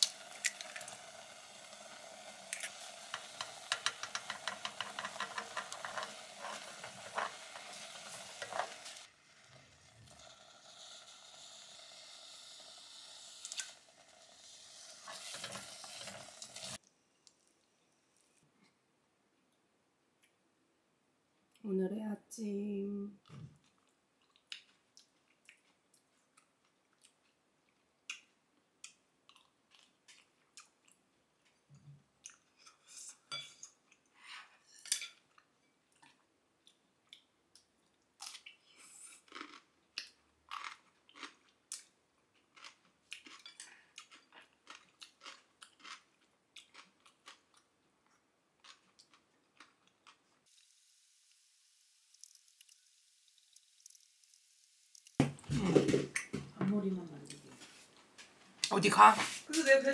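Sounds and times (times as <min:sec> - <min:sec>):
person chewing crunchy food: 0:23.6 - 0:31.5, 0:35.3 - 0:50.6.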